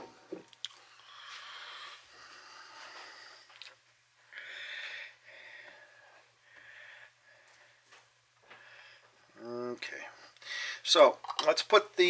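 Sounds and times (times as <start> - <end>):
faint electrical hum: 0.0 - 12.0
man breathing through nose: 0.9 - 3.6, 4.3 - 9.2, 10.4 - 10.8.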